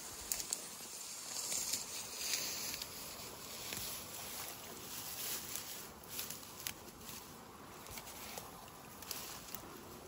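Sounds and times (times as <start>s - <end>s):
faint ticks: 0.2s - 0.8s.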